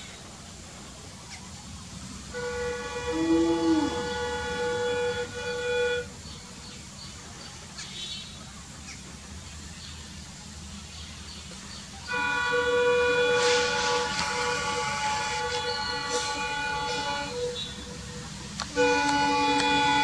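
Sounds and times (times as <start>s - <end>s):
train engine and rail rumble: 0.0s - 20.0s
train air horn: 2.3s - 6.6s, 12.1s - 20.0s.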